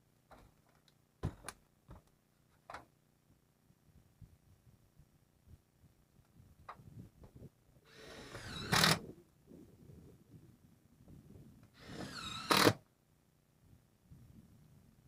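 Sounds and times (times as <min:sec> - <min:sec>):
power driver driving screws: 0:07.9 - 0:09.0, 0:11.8 - 0:12.8.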